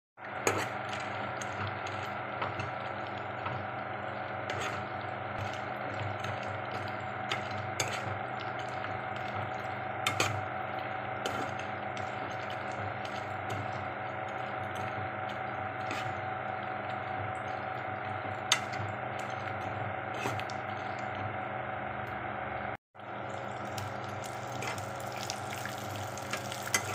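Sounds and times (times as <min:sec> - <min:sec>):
steady hum: 0:00.2 - 0:26.9
metal spatula scraping pan: 0:00.4 - 0:01.1, 0:04.5 - 0:05.6, 0:06.2 - 0:08.1, 0:11.2 - 0:14.9, 0:15.8 - 0:16.2, 0:20.1 - 0:20.8.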